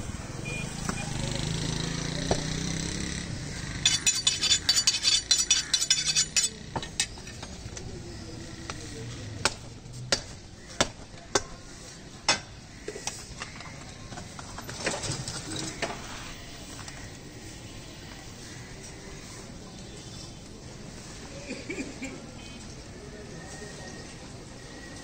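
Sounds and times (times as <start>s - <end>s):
steel blade clinking against metal: 3.9s - 7.1s.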